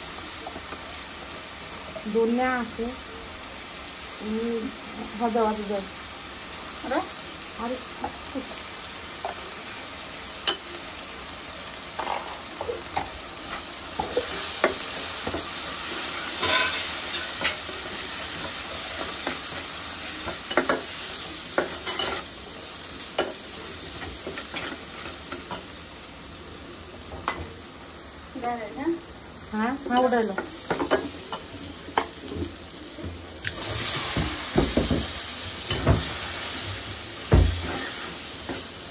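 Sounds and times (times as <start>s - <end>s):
onions sizzling in hot oil: 0.0s - 38.9s
metal spatula scraping a pot: 16.1s - 17.6s.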